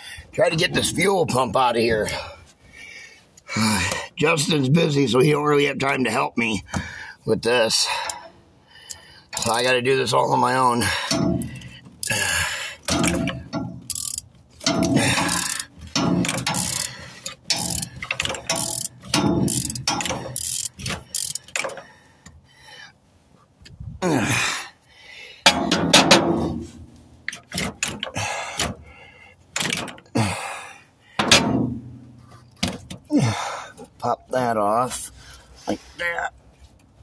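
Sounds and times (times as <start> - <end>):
socket ratchet clicking: 11.1 - 21.8.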